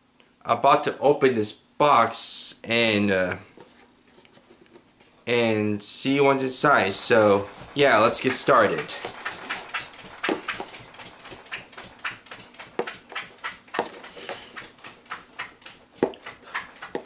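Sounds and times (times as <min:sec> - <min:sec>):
dog claws clicking: 0:06.9 - 0:17.0.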